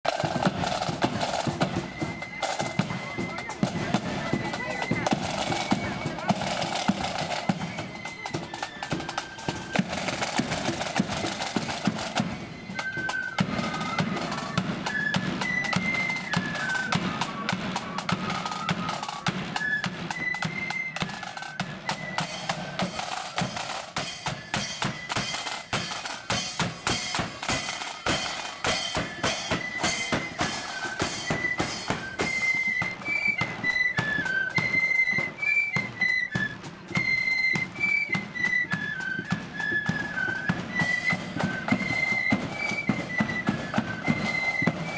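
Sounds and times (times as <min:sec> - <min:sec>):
snare drums: 0:00.0 - 0:44.9
flutes playing melody: 0:00.1 - 0:44.9.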